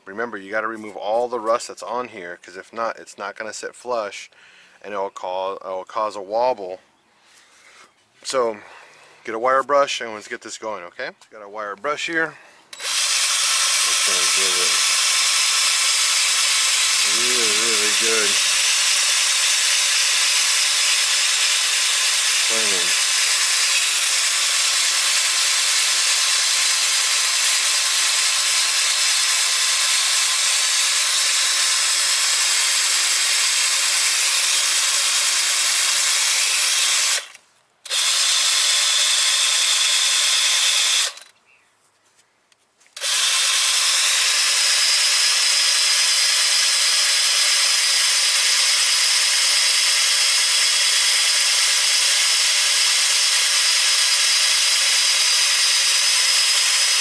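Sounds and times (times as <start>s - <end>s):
wire brush power tool scouring steel: 12.7s - 41.3s, 43.0s - 57.0s.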